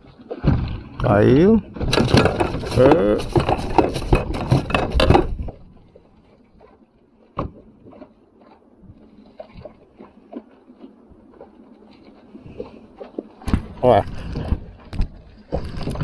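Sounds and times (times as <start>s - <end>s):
knocks and taps on kayak: 1.8s - 5.6s, 7.4s - 8.0s.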